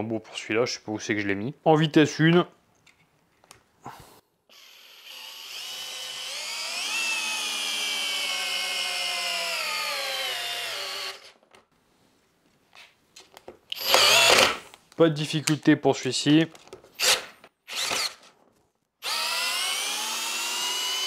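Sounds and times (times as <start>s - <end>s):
cordless drill driving screw into wood: 4.5s - 11.4s, 13.7s - 14.6s, 17.0s - 18.3s, 19.0s - 21.0s.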